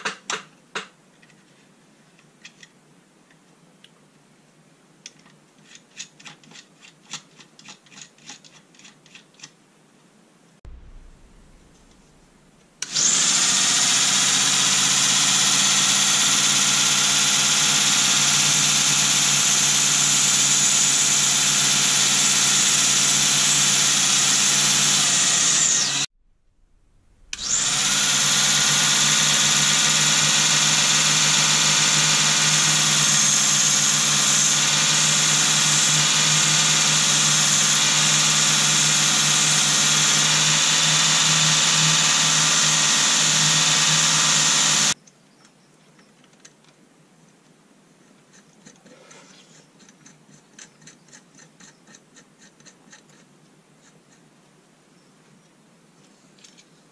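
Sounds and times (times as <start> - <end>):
belt sander whining: 10.7 - 26.1, 26.7 - 45.0.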